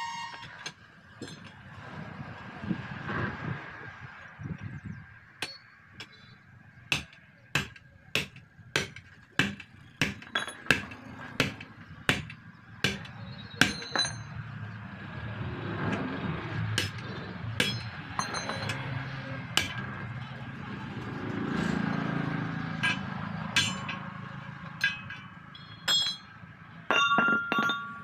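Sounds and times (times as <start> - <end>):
hammer striking metal: 5.4 - 6.2, 6.9 - 14.4, 16.8 - 19.0, 19.6 - 19.9, 22.8 - 28.0.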